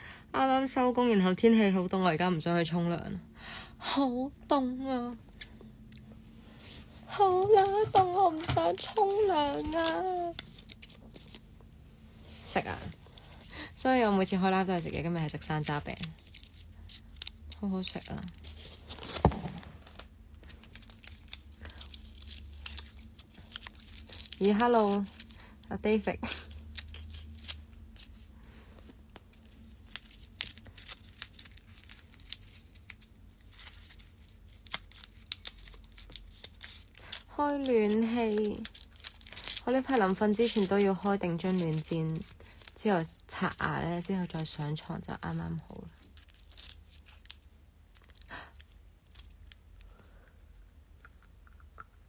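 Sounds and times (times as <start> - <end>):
faint low hum: 0.0 - 52.0
handling clicks and crinkles: 7.2 - 11.8, 12.6 - 50.0.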